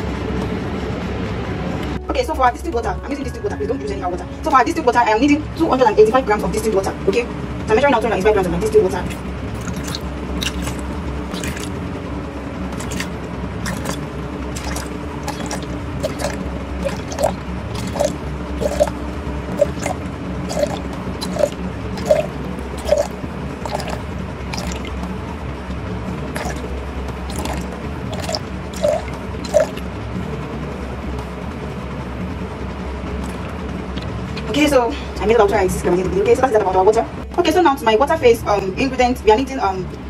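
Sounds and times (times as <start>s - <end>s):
bottle glugging: 9.0s - 11.7s, 12.8s - 25.0s, 26.4s - 26.7s, 27.3s - 29.8s
water pouring into beaker: 9.0s - 11.8s, 12.8s - 25.0s, 26.4s - 26.7s, 27.3s - 29.8s.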